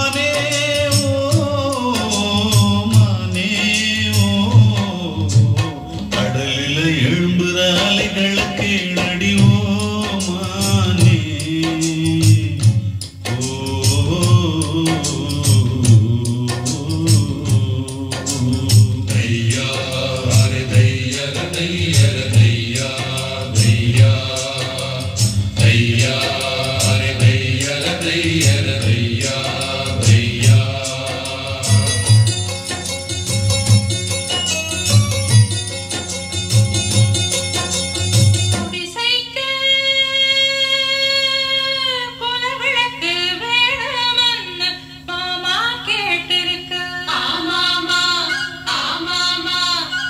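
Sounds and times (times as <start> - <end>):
chanted vocal over bass beat: 0.0 - 39.0
low drone: 13.4 - 33.8.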